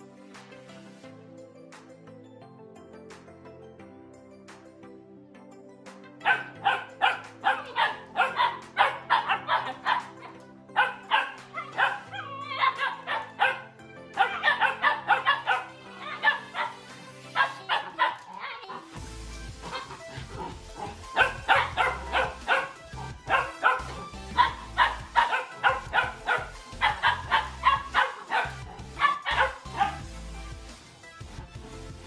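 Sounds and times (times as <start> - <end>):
background music: 0.0 - 32.0
puppies barking and yipping: 6.2 - 30.1.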